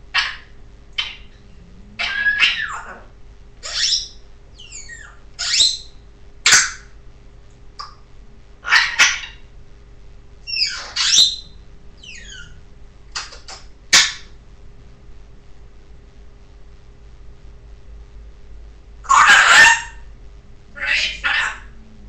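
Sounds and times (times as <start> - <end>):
parrot squawking: 0.1 - 1.4, 2.0 - 6.9, 8.6 - 9.5, 10.5 - 14.3, 19.1 - 20.1, 20.8 - 21.8.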